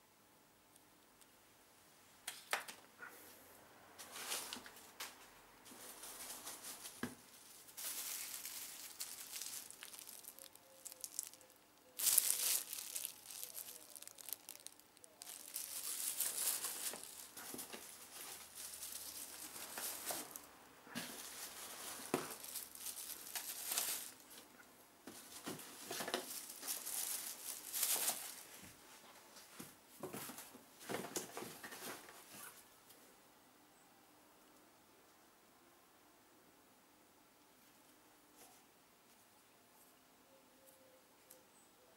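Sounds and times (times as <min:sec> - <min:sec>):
plastic bags crinkling: 0:05.7 - 0:24.4, 0:25.1 - 0:28.6.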